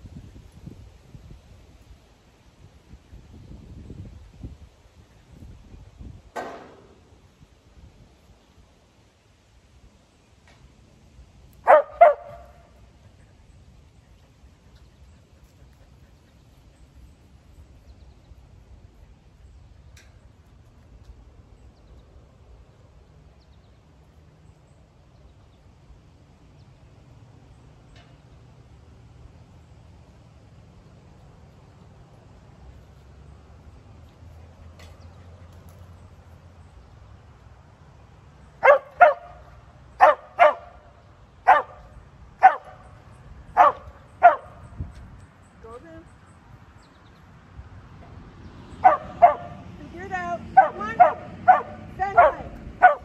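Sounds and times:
dog barking: 11.6 - 12.6, 38.6 - 39.4, 40.0 - 40.8, 41.4 - 42.8, 43.6 - 44.5, 48.8 - 49.6, 50.6 - 53.0.

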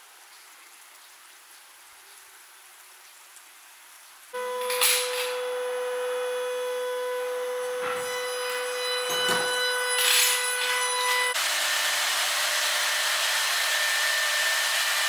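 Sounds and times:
steady machine hum: 4.4 - 12.4.

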